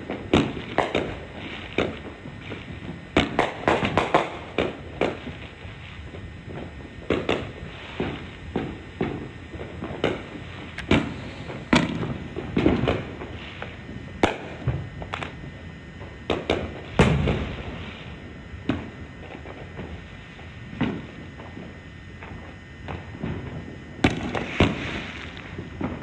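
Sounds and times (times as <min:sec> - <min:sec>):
fireworks bangs: 0:00.0 - 0:26.0
steady background hiss: 0:00.0 - 0:26.0.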